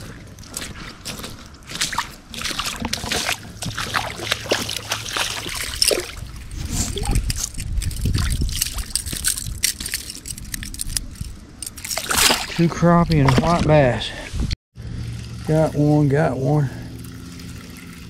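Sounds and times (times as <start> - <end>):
boots wading in water: 0.0 - 6.9, 11.8 - 13.6
shallow water splashing: 0.0 - 7.2, 11.8 - 13.6.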